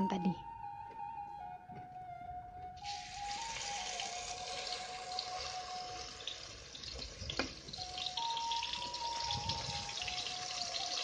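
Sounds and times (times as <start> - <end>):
spice paste sizzling in oil: 2.8 - 11.0.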